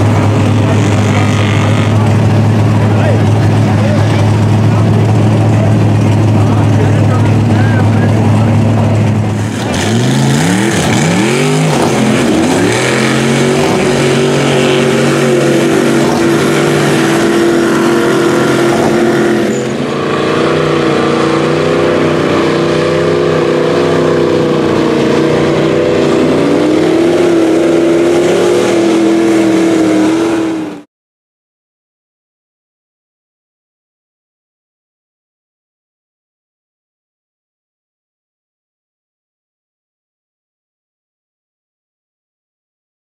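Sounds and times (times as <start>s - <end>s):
truck engine revving hard: 0.0s - 30.9s.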